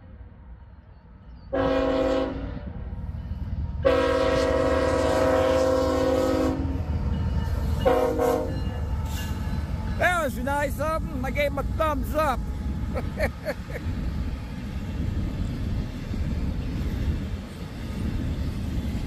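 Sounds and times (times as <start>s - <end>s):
low rumble of passing locomotives: 0.0s - 19.0s
locomotive air horn blasts: 1.5s - 2.7s, 3.8s - 6.8s, 7.8s - 8.6s.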